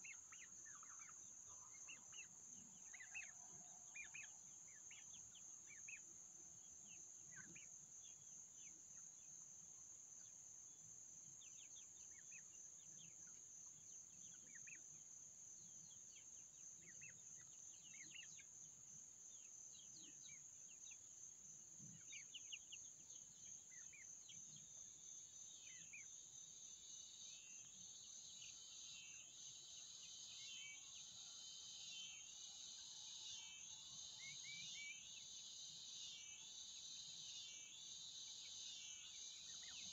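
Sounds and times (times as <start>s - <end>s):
high-pitched insect chorus: 0.0s - 39.9s
pulsing insect trill: 11.4s - 39.9s.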